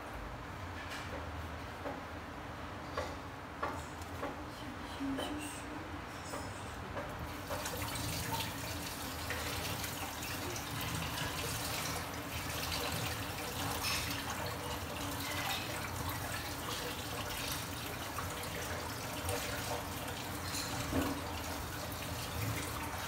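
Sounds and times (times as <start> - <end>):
running tap water splashing: 7.2 - 23.0.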